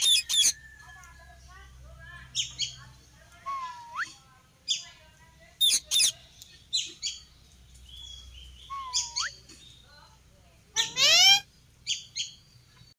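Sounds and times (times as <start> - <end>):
parakeet chirps: 0.0 - 0.6, 5.6 - 6.2.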